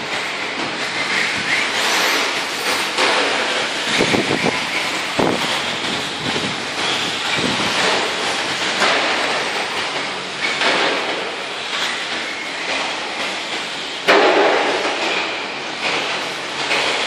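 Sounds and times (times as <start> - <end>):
toy cars racing on dirt: 0.8 - 3.2.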